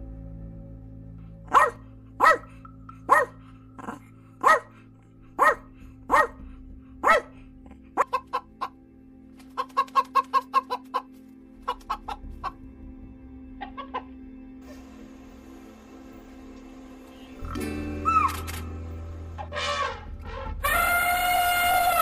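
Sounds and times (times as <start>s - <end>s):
faint music: 0.0s - 22.0s
small dog yapping: 1.5s - 2.5s, 4.4s - 4.7s, 5.4s - 6.4s, 7.0s - 7.3s
hens clucking: 8.0s - 8.8s, 9.4s - 12.6s, 13.6s - 14.2s.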